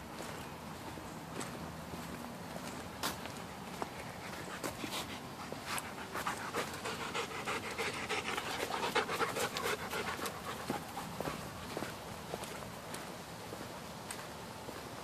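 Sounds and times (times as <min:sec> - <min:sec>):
dog panting rapidly: 0:04.1 - 0:11.7.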